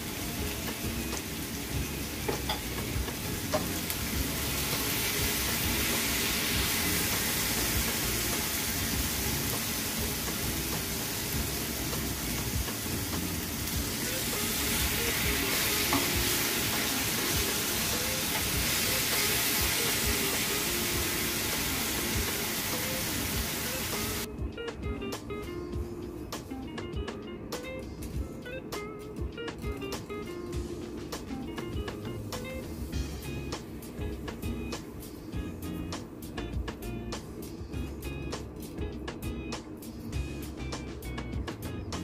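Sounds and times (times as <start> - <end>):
meat sizzling in a frying pan: 0.0 - 24.3.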